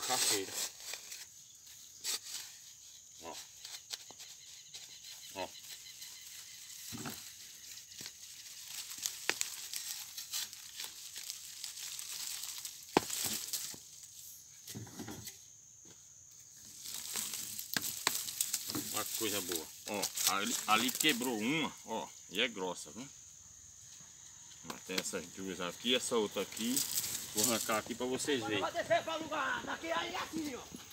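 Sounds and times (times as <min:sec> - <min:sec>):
dirt crackling and crumbling: 0:05.4 - 0:14.1, 0:16.5 - 0:21.5, 0:26.3 - 0:30.9.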